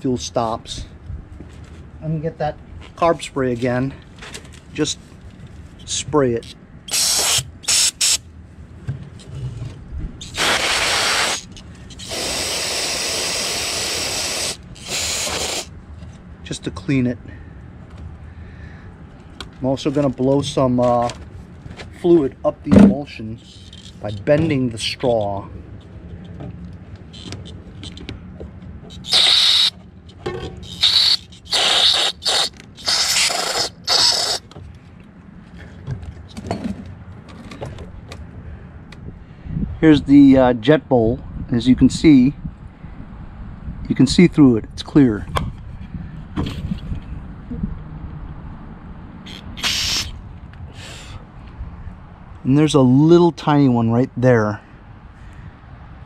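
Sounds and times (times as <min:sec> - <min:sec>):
aerosol spray hissing: 0:06.9 - 0:08.2, 0:10.2 - 0:15.7, 0:29.0 - 0:29.7, 0:30.6 - 0:34.4, 0:49.3 - 0:50.2.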